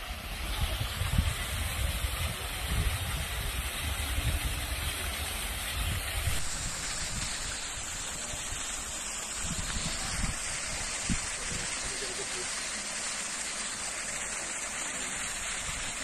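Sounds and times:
wind rumbling on microphone: 0.0 - 12.0
waterfall splashing into pond: 0.0 - 16.0.

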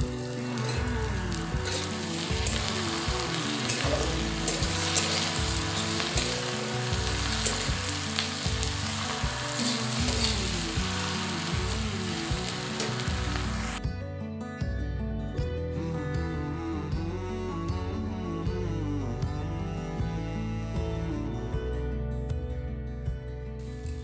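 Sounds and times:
onions sizzling in a pan: 0.0 - 13.8
background music: 0.0 - 24.0.

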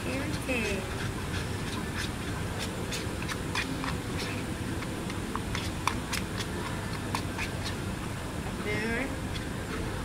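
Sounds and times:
stick stirring slime in bowl: 0.0 - 8.0, 8.6 - 10.0.

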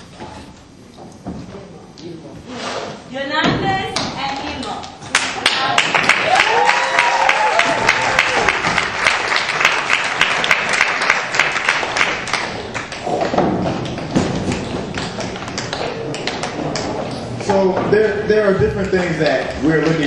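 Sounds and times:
audience applause: 5.1 - 13.2
audience cheering: 5.8 - 10.5.

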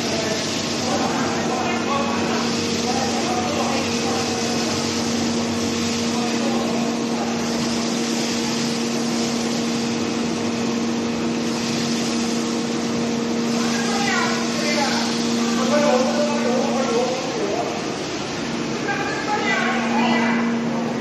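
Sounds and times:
hot oil bubbling: 0.0 - 20.9
machine hum: 0.0 - 21.0.

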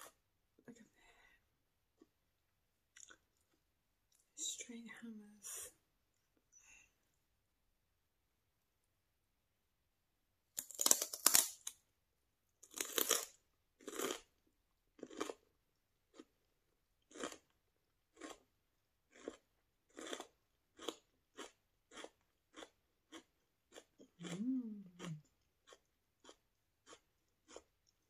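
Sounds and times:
celery crunching while chewed: 3.0 - 4.2, 12.6 - 14.3, 15.0 - 15.5, 17.0 - 18.5, 19.1 - 28.0.

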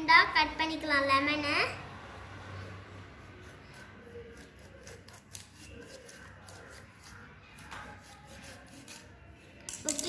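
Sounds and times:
knife sawing through lemon: 2.6 - 7.3, 7.9 - 9.2.

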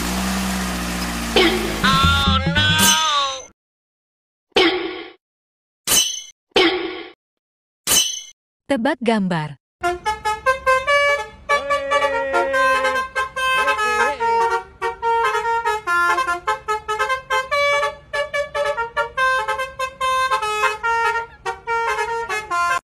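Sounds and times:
bus horn playing fast melody: 0.0 - 2.9, 9.8 - 22.8.

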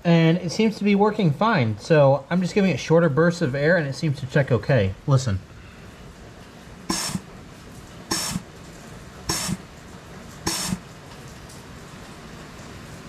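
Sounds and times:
compressed air bursts: 6.9 - 7.4, 8.1 - 8.6, 9.3 - 9.7, 10.4 - 10.9.

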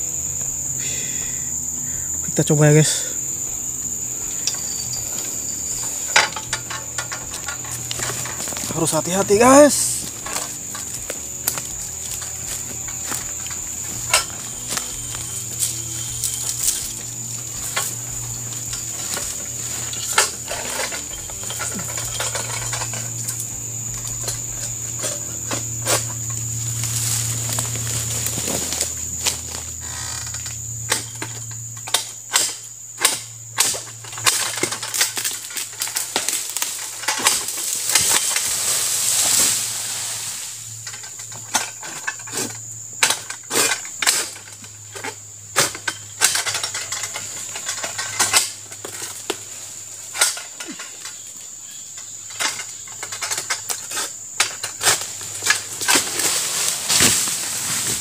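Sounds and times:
high-pitched whine: 0.0 - 50.3
sickle hacking clicks and knocks: 30.1 - 38.5.

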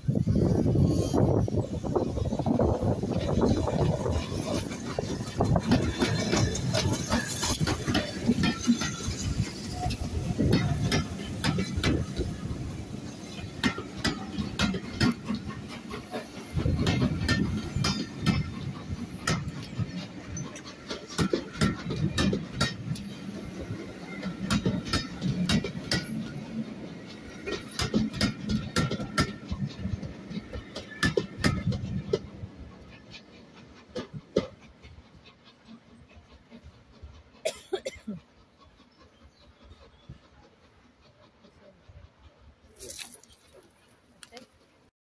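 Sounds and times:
train wheels rumbling on rails: 0.0 - 44.9
clicks and clunks from wheels: 19.2 - 23.2, 27.3 - 32.3.

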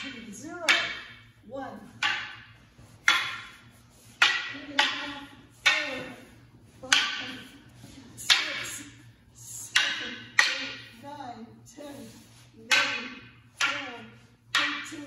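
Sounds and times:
wooden staffs clacking: 0.0 - 11.0, 12.0 - 15.0.

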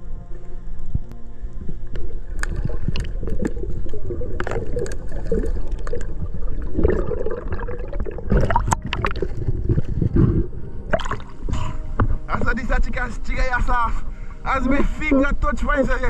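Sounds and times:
water gurgling underwater: 1.6 - 11.4.

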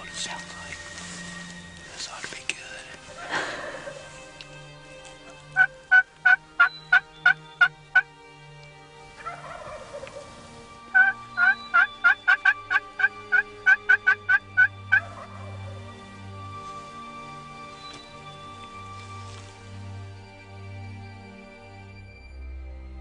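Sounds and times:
friction turkey call yelps: 5.6 - 8.1, 9.2 - 10.3, 10.9 - 15.8.

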